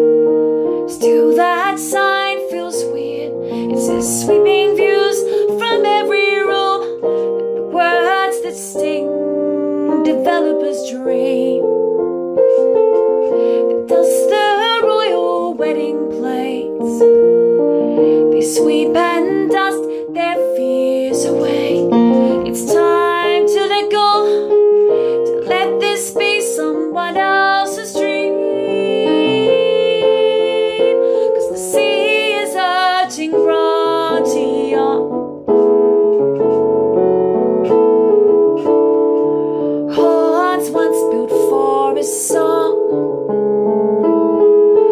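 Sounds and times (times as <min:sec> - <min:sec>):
piano chords: 0:00.0 - 0:44.9
woman singing: 0:00.9 - 0:12.0, 0:13.6 - 0:17.2, 0:17.8 - 0:35.3, 0:39.9 - 0:43.1.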